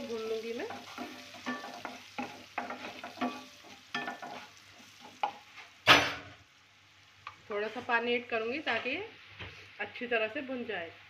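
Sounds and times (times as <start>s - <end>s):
oil sizzling: 0.0s - 9.8s
wooden spatula scraping pan: 0.5s - 5.8s.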